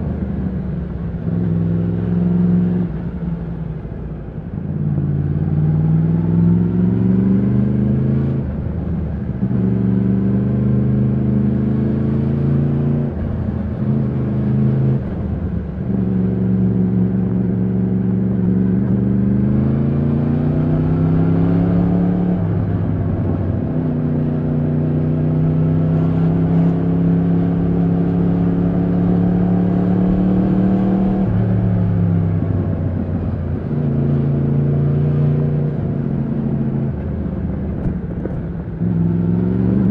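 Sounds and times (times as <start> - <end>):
motorcycle engine accelerating: 9.5 - 39.9.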